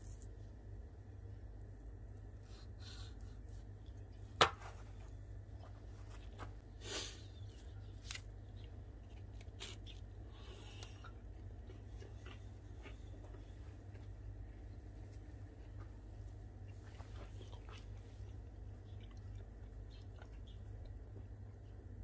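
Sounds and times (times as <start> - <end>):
knife crunching through pastry crust: 9.1 - 10.0.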